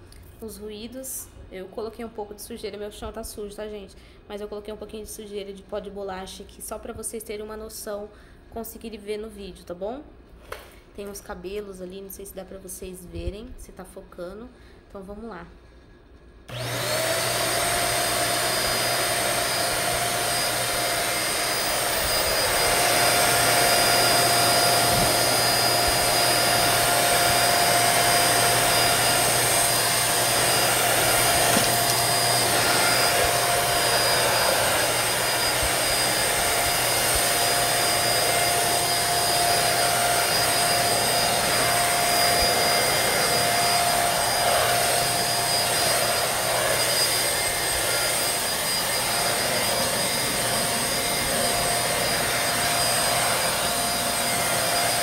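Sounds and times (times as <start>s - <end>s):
vacuum cleaner running: 16.5s - 55.0s
vacuum nozzle on tiled floor: 16.5s - 55.0s.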